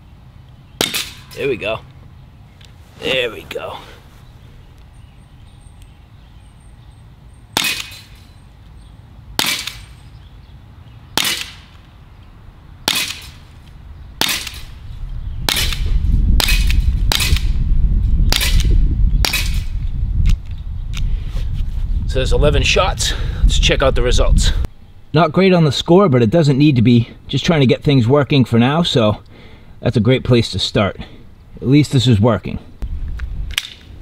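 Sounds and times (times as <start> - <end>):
air pistol pops: 7.6 - 8.1, 9.4 - 9.9, 11.2 - 11.8, 14.2 - 14.7, 15.5 - 17.5, 18.3 - 21.1, 33.2 - 33.9.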